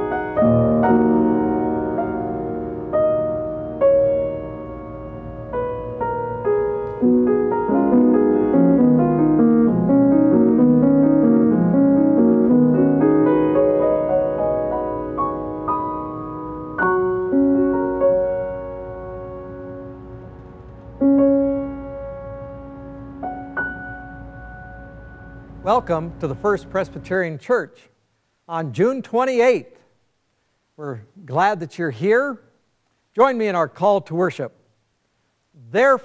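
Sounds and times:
solo piano chords: 0.0 - 26.6.

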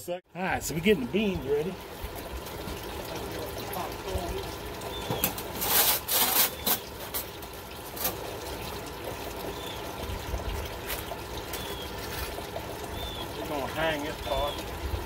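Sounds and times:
birds chirping: 0.5 - 5.5, 8.5 - 15.0
coals clinking and crackling: 4.7 - 9.3
metal shovel scraping coals: 5.2 - 8.2.

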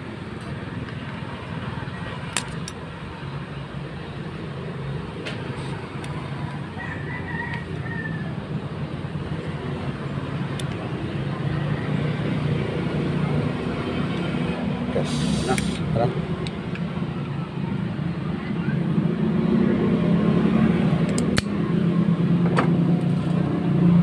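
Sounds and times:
rooster crowing: 6.5 - 8.5.

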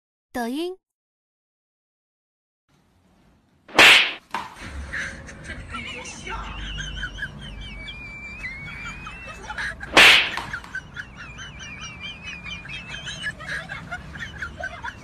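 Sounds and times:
loud sharp crack: 3.7 - 4.5, 9.9 - 10.6.

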